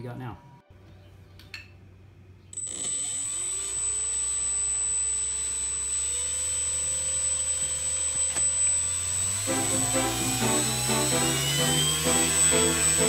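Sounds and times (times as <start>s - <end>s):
electric motor spinning propeller: 2.6s - 13.0s.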